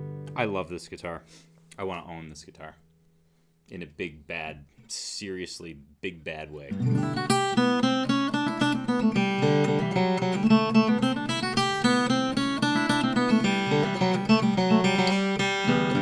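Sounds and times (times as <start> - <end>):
acoustic guitar picking and chords: 0.0 - 0.8, 6.7 - 16.0.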